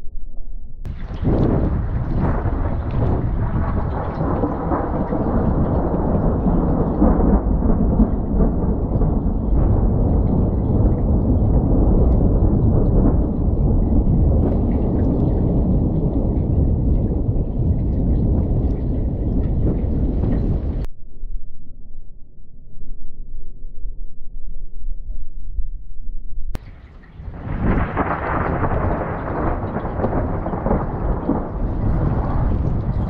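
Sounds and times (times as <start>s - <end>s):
thunder rumble: 0.8s - 20.9s, 26.5s - 33.0s
rain hiss: 0.9s - 20.9s, 26.6s - 33.0s.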